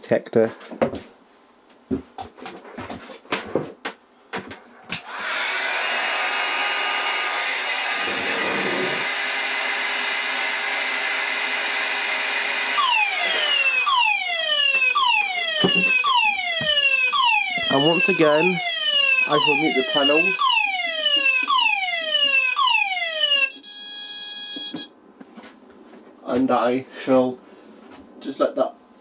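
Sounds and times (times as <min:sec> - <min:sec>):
hot-air blower running: 0:04.9 - 0:13.9
whooping alarm sounder: 0:12.7 - 0:24.9.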